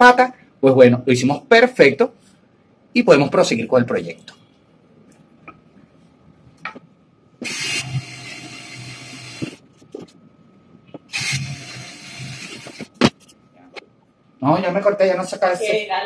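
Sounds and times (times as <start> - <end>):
cordless drill boring into wood: 7.4 - 9.6, 11.1 - 12.9.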